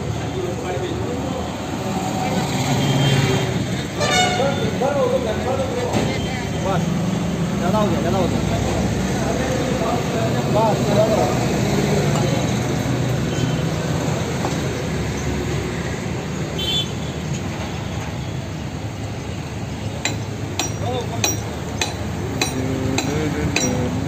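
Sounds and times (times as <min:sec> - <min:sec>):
engine and traffic rumble: 0:00.0 - 0:24.0.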